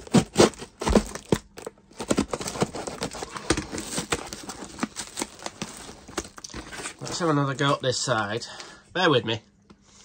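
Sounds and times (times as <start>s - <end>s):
cardboard box tearing and crackling: 0.0s - 7.7s.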